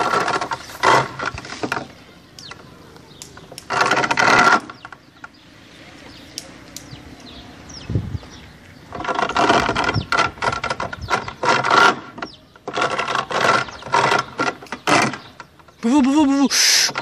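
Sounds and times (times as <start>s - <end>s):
swing chains creaking: 0.0s - 5.5s, 6.1s - 17.0s.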